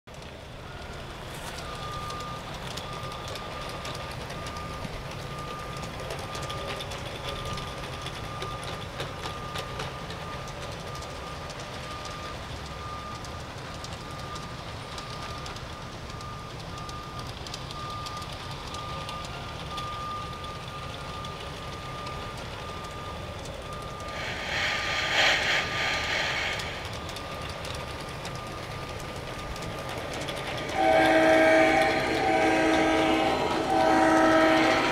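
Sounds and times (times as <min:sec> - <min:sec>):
model trains rumbling: 0:00.1 - 0:34.9
loud hiss: 0:24.1 - 0:27.4.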